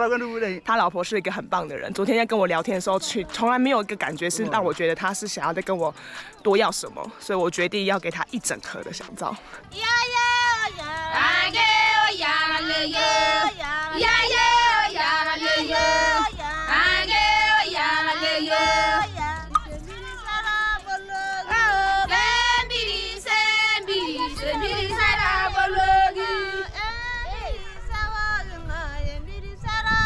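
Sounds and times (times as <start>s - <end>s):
high singing voice: 9.6s - 30.0s
low bass line: 15.5s - 20.8s.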